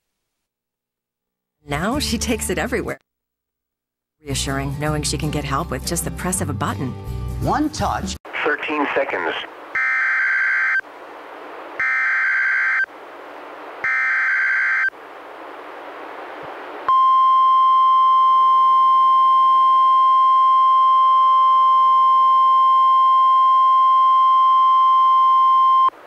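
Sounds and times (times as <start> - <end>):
radio hiss: 8.3 - 9.8
steady warning alarm tone: 9.8 - 10.8, 11.8 - 12.9, 13.8 - 14.9.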